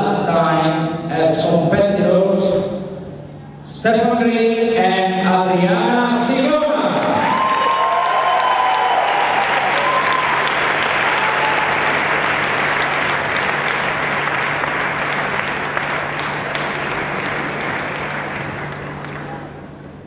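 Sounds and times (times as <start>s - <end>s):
audience applauding: 7.0s - 19.7s.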